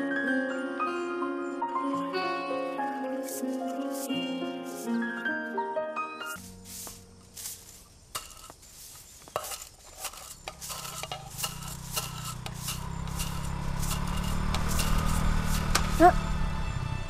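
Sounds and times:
broom sweeping asphalt: 2.7 - 5.4, 6.2 - 16.2
motorbike engine approaching: 9.4 - 17.0.

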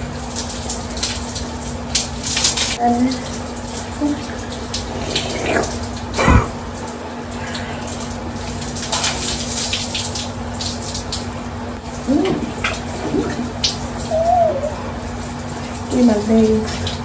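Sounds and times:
shower spray on hair and skin: 12.1 - 17.0.

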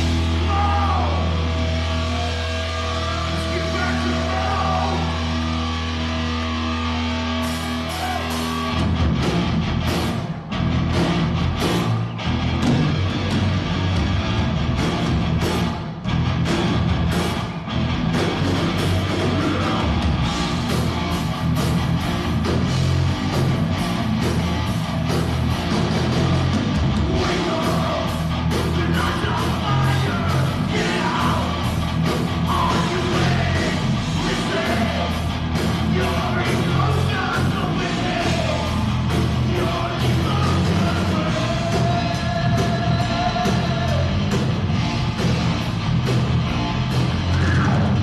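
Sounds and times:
shouted lead vocal: 0.0 - 9.0, 18.8 - 20.5, 26.9 - 44.4, 47.2 - 48.0
heavy metal band playing: 0.0 - 48.0.

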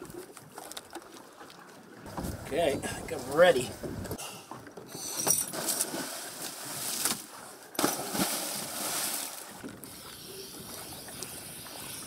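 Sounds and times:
water sloshing: 3.8 - 9.8
divers splashing into water: 5.5 - 9.6.

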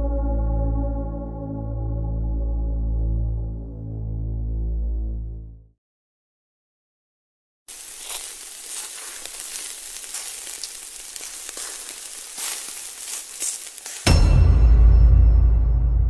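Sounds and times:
crackling sizzling hiss: 7.7 - 14.1.

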